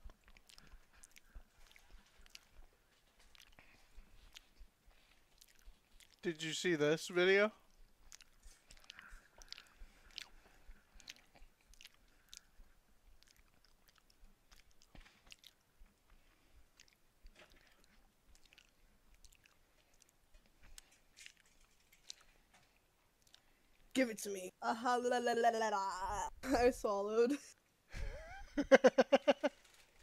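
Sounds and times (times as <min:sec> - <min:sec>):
mouth chewing clicks and smacks: 0:00.0 - 0:06.5, 0:07.5 - 0:23.9.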